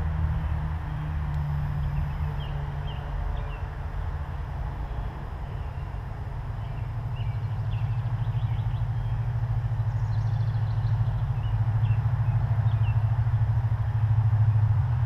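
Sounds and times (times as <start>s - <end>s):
low pulsing engine drone: 0.0s - 15.0s
small birds chirping: 1.7s - 3.8s, 4.8s - 13.4s.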